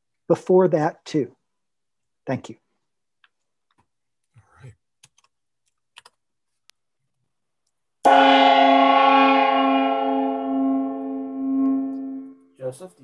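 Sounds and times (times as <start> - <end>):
gong ringing: 8.1 - 12.5.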